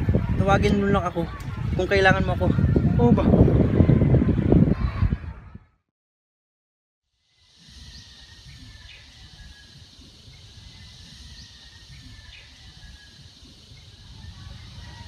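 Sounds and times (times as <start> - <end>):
steady hiss: 7.2 - 15.0
faint bird chirps: 7.3 - 15.0.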